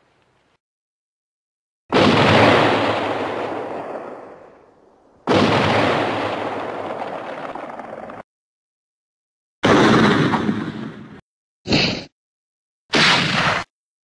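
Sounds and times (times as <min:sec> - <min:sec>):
cartoon gunshot with rumble: 0:01.9 - 0:04.2, 0:05.3 - 0:07.4, 0:09.6 - 0:11.2, 0:12.9 - 0:13.7.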